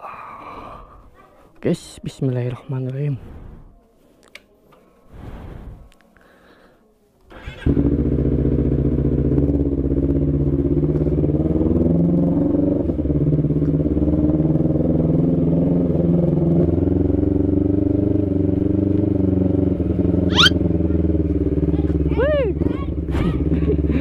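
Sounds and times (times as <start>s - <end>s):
motorcycle engine running: 7.4s - 24.0s.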